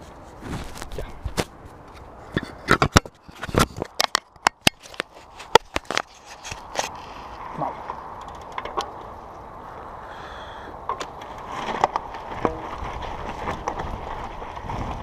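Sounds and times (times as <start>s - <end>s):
bike rolling over gravel: 0.0s - 9.8s, 10.8s - 15.0s
sharp clicks and rattles: 7.9s - 9.1s.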